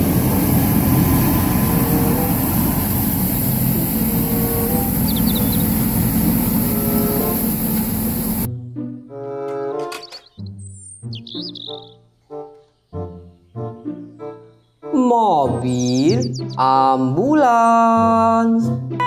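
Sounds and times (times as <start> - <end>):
rotating brush sweeping litter: 0.0 - 8.5
street sweeper engine rumble: 0.0 - 8.5.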